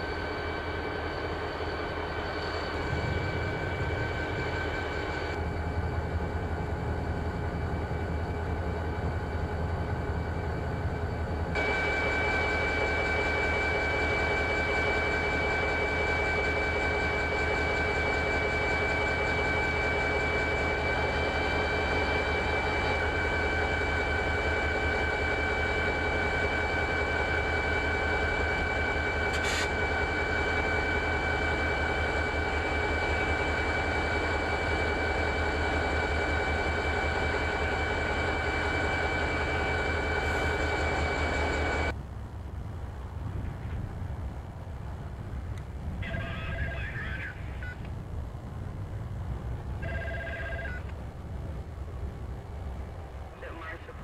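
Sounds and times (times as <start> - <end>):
high steady whines: 0.0 - 54.0
locomotive engine rumble: 0.0 - 54.0.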